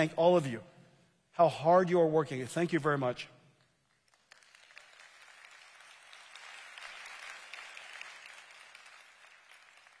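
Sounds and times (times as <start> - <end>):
audience applause: 4.1 - 10.0.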